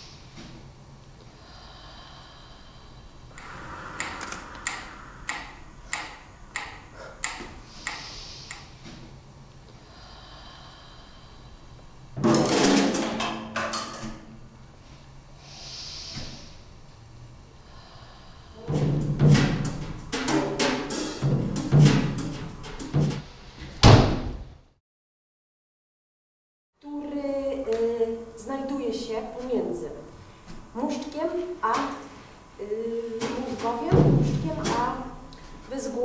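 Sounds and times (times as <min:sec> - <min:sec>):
woman breathing into microphone: 0:01.2 - 0:09.0, 0:09.7 - 0:11.9, 0:15.0 - 0:16.8, 0:17.6 - 0:18.8
rough vocal burst: 0:03.3 - 0:06.3
sharp vocal clicks: 0:03.3 - 0:08.7.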